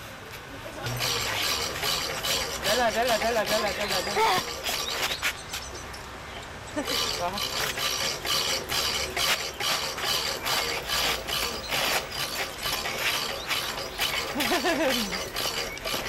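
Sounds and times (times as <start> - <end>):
hand crank ratchet clicking: 6.8 - 16.0.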